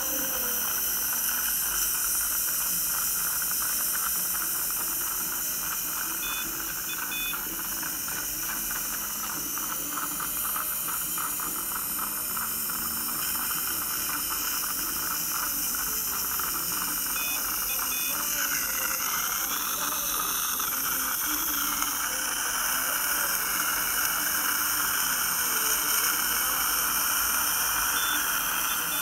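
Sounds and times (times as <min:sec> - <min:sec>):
faint electronic beeps: 0:04.2 - 0:11.7, 0:12.4 - 0:29.0.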